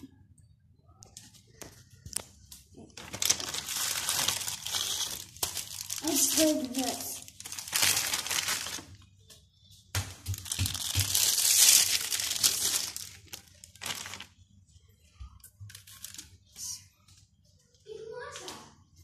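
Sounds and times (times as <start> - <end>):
plastic packaging crinkling: 2.8 - 9.1, 10.1 - 14.4, 15.7 - 16.4.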